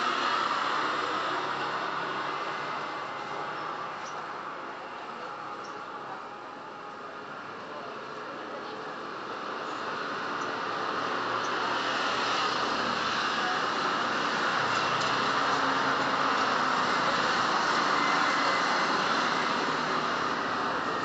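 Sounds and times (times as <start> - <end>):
motor scooter passing: 10.6 - 21.0.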